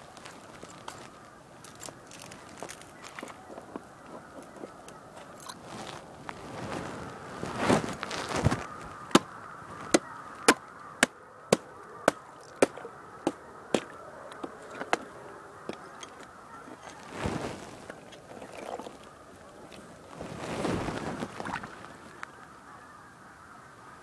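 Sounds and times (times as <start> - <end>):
geese honking: 8.1 - 19.8, 21.7 - 24.0.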